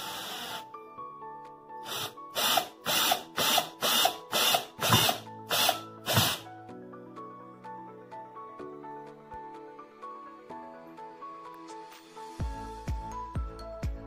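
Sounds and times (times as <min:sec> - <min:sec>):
cordless drill driving a screw: 0:00.0 - 0:00.7, 0:01.8 - 0:06.4.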